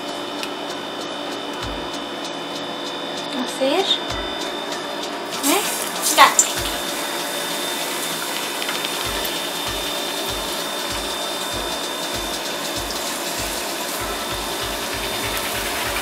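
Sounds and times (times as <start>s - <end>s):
faint high whine: 0.0s - 16.0s
bread deep-frying in oil: 5.2s - 16.0s.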